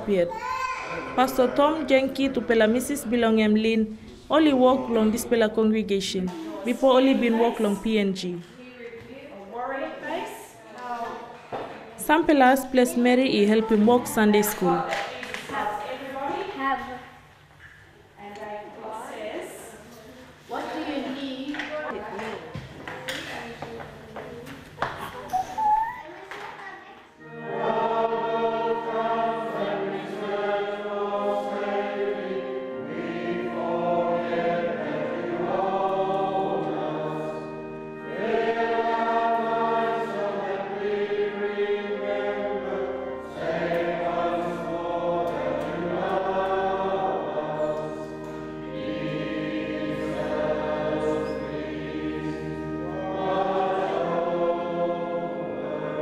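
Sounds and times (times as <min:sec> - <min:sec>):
congregation singing a hymn: 0:00.9 - 0:08.4, 0:09.9 - 0:16.5, 0:27.2 - 0:56.0.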